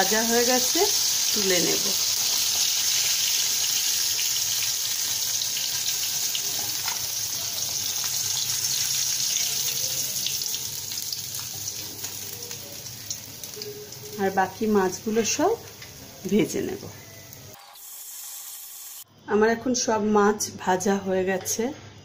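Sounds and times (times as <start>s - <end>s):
fish sizzling in hot oil: 0.0s - 19.0s.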